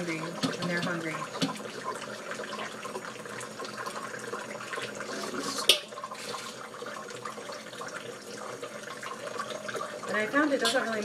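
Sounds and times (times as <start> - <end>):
tap water running: 0.0 - 11.0.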